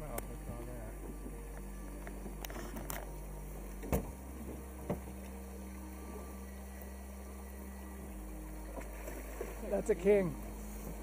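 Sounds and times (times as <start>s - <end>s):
river water rushing: 3.3s - 11.0s
sharp knocks on boat: 3.8s - 5.2s.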